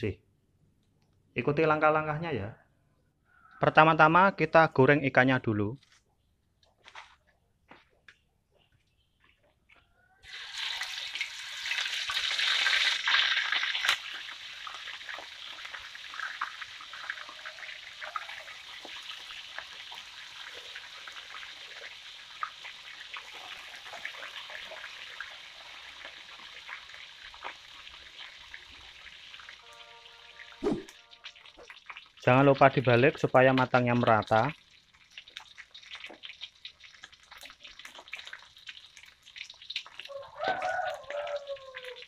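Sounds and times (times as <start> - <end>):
oil crackling and spitting: 10.2 - 29.7, 30.8 - 42.0
fish sizzling in hot oil: 10.2 - 32.9, 34.0 - 42.0.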